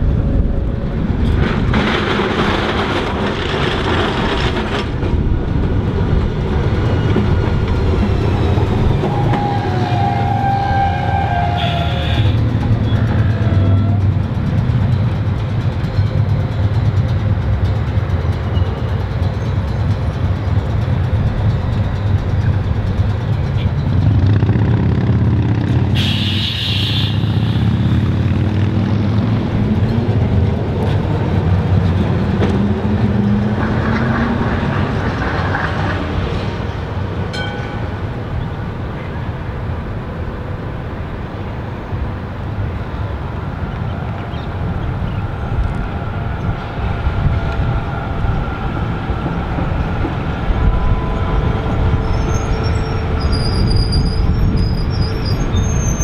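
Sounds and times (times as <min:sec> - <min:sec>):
tram motor whine: 0:00.0 - 0:56.0
trams and traffic rumbling: 0:00.0 - 0:56.0
tram wheels squealing on rail: 0:06.8 - 0:14.2, 0:18.3 - 0:20.8, 0:25.8 - 0:28.0, 0:43.9 - 0:56.0.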